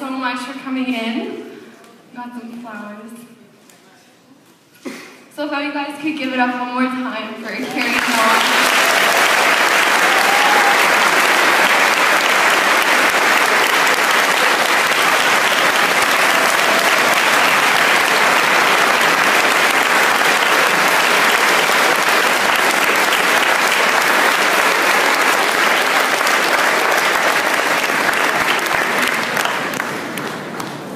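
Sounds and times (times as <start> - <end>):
large audience applauding: 7.6 - 30.9.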